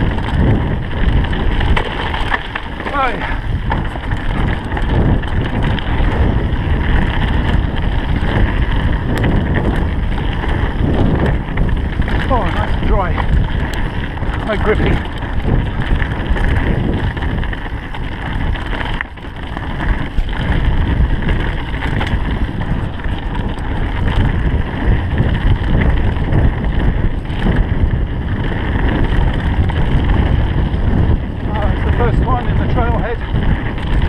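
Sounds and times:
bike knocks and rattles: 0.0s - 34.0s
tyres rumbling on dirt trail: 0.0s - 34.0s
wind buffeting microphone: 0.0s - 34.0s.

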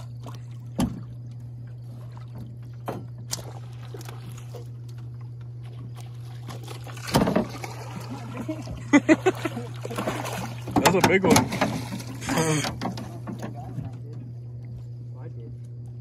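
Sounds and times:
boat motor hum: 0.0s - 16.0s.

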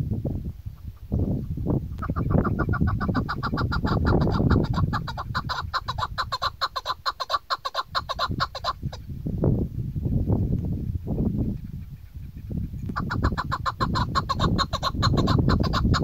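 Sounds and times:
partridge calling: 0.7s - 9.1s, 11.4s - 16.0s.

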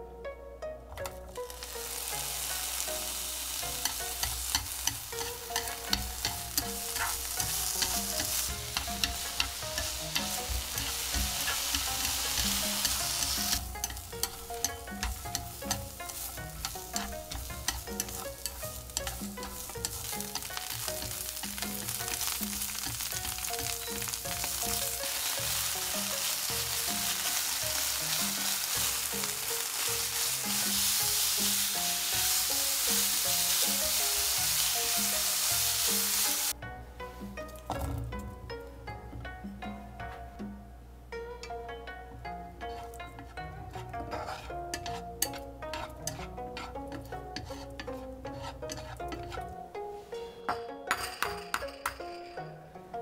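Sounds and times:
chopsticks tapping a pan: 0.9s - 36.6s, 41.4s - 49.7s
food sizzling in a frying pan: 1.3s - 36.6s, 44.0s - 49.5s.

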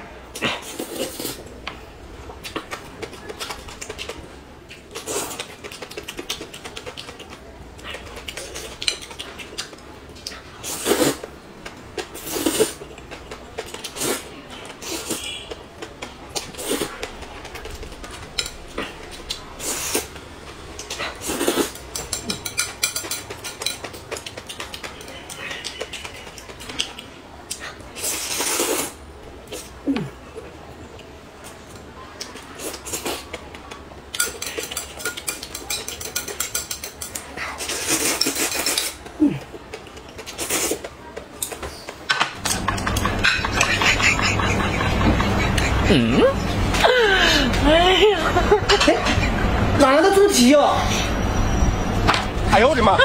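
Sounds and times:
noodles slurped and chewed: 0.3s - 1.5s, 2.4s - 20.2s, 20.8s - 22.4s, 23.0s - 30.2s, 32.2s - 33.5s, 34.2s - 41.6s
chopsticks clicking against plate: 2.4s - 10.4s, 21.8s - 27.6s, 32.2s - 39.1s, 39.7s - 45.8s.

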